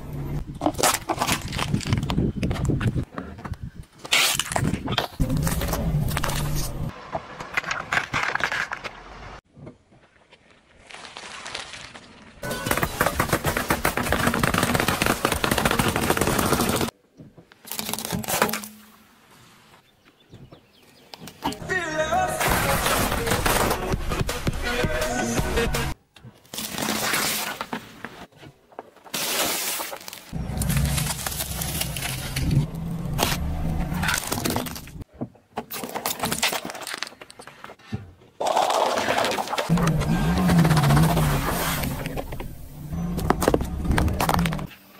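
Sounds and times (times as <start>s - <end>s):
tyre crunching plastic straws: 0.6s - 2.8s, 29.0s - 33.4s
tyre crushing drink cans: 22.4s - 25.1s
car engine humming: 39.7s - 44.8s.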